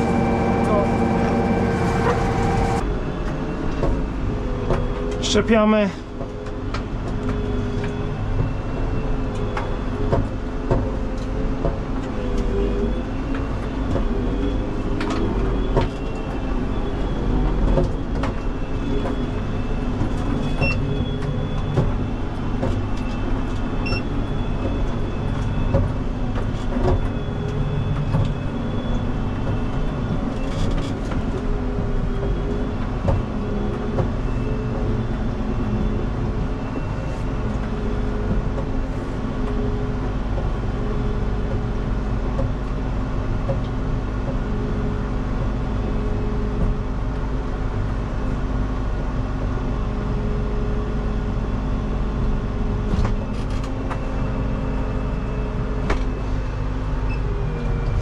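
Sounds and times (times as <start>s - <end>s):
diesel engine idling: 0.0s - 2.9s.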